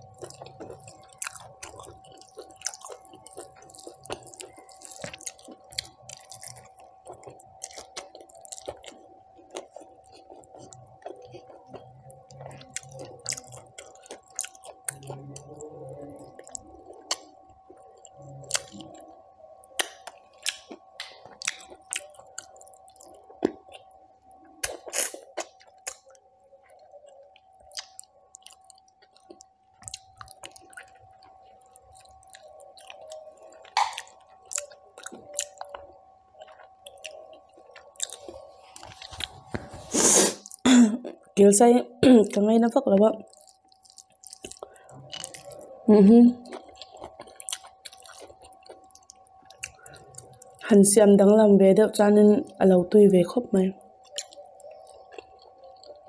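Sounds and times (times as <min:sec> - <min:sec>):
chewing with wet mouth smacks: 0:00.0 - 0:41.3, 0:42.3 - 0:50.7, 0:53.8 - 0:56.0
faint steady hum: 0:00.0 - 0:56.0.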